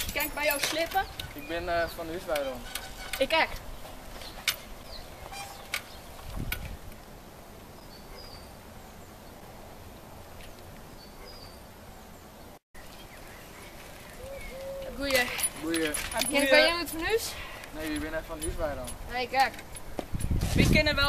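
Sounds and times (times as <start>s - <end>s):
outdoor background hiss: 0.0s - 21.0s
faint bird chirps: 12.8s - 15.0s.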